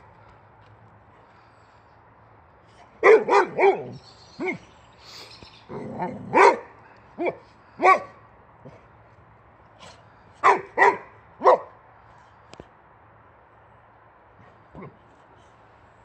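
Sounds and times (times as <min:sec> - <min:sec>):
dog barking sharply: 0:03.0 - 0:04.6, 0:06.3 - 0:08.1, 0:10.4 - 0:11.7.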